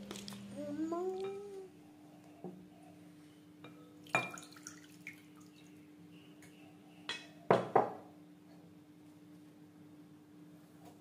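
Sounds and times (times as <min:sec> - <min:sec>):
faint steady hum: 0:00.0 - 0:11.0
water dripping into glass bowl: 0:04.0 - 0:05.6.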